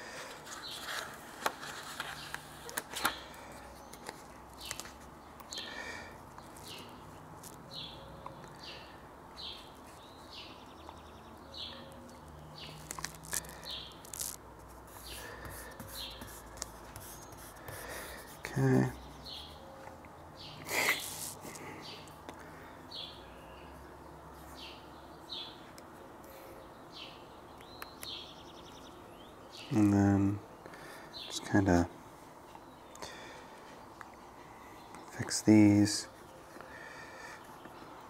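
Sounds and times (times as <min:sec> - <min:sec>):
vinyl and paper crinkling: 0:00.3 - 0:03.2, 0:12.7 - 0:14.4.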